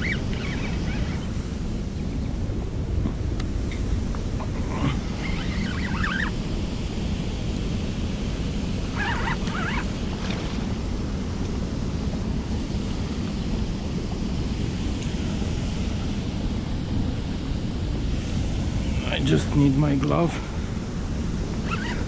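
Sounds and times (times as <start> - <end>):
bird calls: 0.0 - 1.4, 4.7 - 6.4, 8.9 - 9.9, 21.6 - 22.0
river flowing: 8.3 - 22.0.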